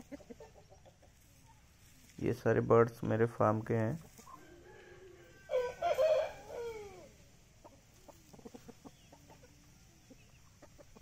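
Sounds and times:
hen clucking softly: 0.0 - 1.7, 4.0 - 11.0
faint scratching in dirt: 0.0 - 11.0
rooster crowing: 4.3 - 7.2.

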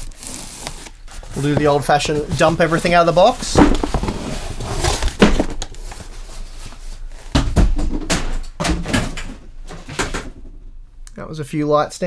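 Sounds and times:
cardboard rustling: 0.0 - 7.4
boxes thudding onto table: 3.4 - 5.7.

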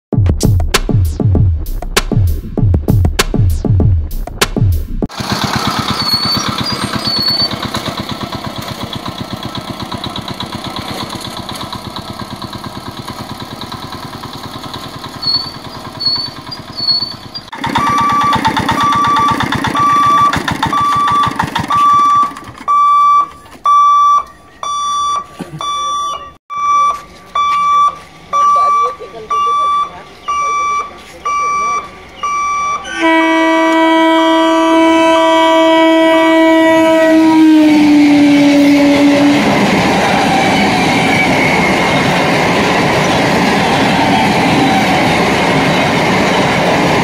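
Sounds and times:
van engine chugging: 5.0 - 26.4
level crossing alarm beeping: 5.2 - 9.6, 13.8 - 33.5.

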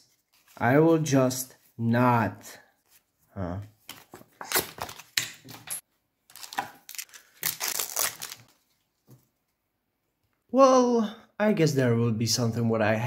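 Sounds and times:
trading cards rustling and scraping: 3.8 - 8.8.

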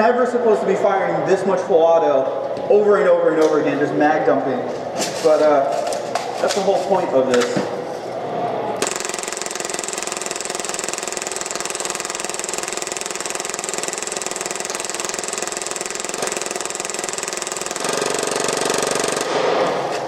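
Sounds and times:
airsoft pistol full-auto burst: 8.8 - 19.6.

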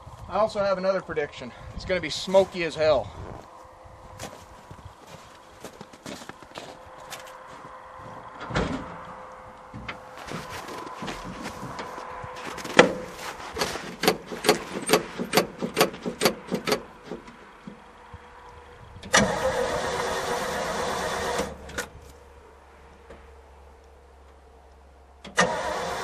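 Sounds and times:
truck engine cranking on starter: 7.4 - 22.1, 25.2 - 26.0.

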